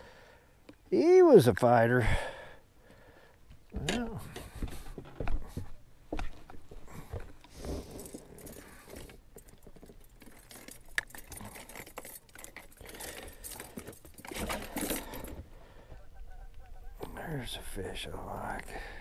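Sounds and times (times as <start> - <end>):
metal fish stringer jingling: 7.9 - 15.4.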